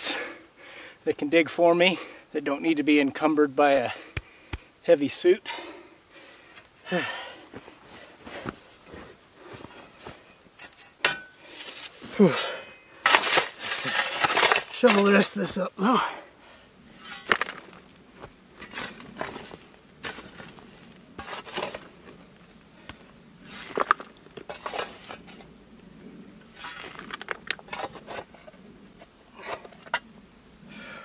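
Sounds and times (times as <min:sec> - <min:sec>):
shovel scraping broken rock: 0:10.6 - 0:15.6, 0:17.0 - 0:17.9, 0:18.6 - 0:22.2, 0:23.4 - 0:25.5, 0:26.5 - 0:30.0
stones clattering: 0:13.0 - 0:15.3, 0:17.0 - 0:18.0, 0:23.5 - 0:25.4, 0:26.6 - 0:28.3.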